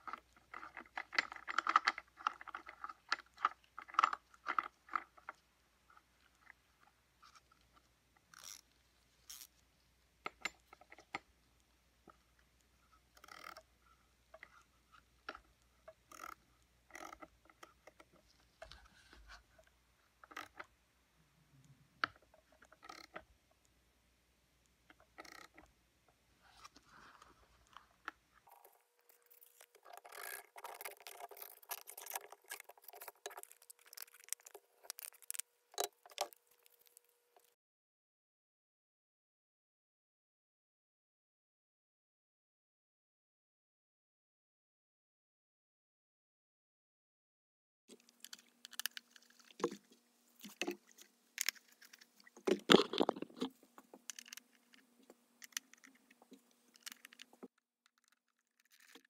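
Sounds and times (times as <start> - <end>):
crackling rustling handling noise: 26.4 - 37.6, 47.9 - 59.0.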